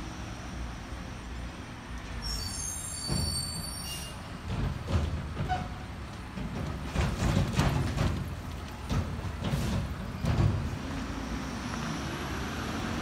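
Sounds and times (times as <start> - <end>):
brake squeal: 2.1 - 4.4
knocks and clatter: 4.5 - 10.8.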